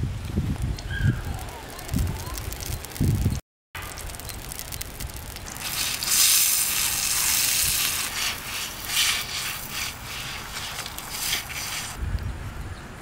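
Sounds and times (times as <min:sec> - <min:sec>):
water hissing on hot griddle: 0:04.0 - 0:12.0
broom scrubbing wet surface: 0:05.6 - 0:12.0.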